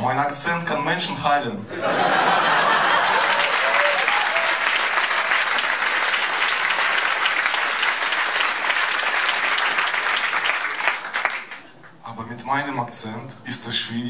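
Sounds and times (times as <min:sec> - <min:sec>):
audience applauding: 0:02.0 - 0:12.0.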